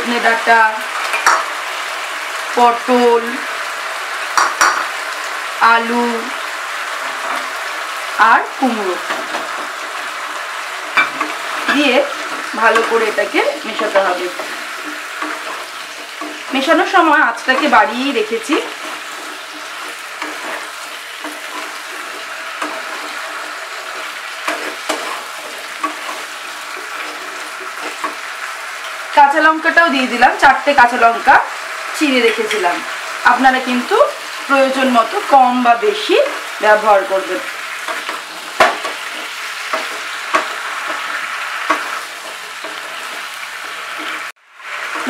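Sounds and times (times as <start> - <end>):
vegetables sizzling in oil: 0.0 - 45.0
spatula scraping pan: 8.9 - 29.2, 31.6 - 45.0.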